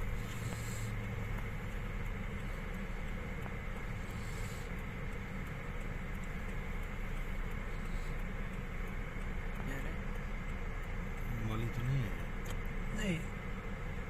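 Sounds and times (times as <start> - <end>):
car driving through snow: 0.0 - 8.1.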